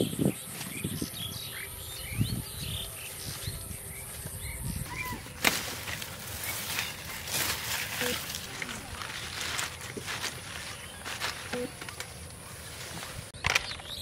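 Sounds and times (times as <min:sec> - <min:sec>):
grass and leaves rustling: 0:00.0 - 0:13.4
small birds chirping: 0:00.0 - 0:14.0
plant stems snapping: 0:05.3 - 0:10.2.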